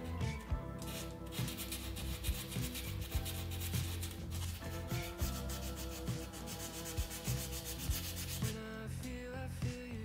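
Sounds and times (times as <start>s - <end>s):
background music: 0.0s - 10.0s
sandpaper scratching on clay: 0.8s - 8.7s.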